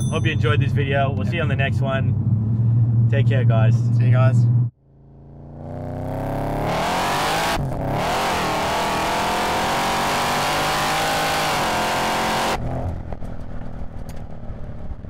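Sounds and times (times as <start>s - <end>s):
engine low rumble with crackles: 0.3s - 5.7s, 12.6s - 15.0s
car engine accelerating hard: 4.4s - 13.1s.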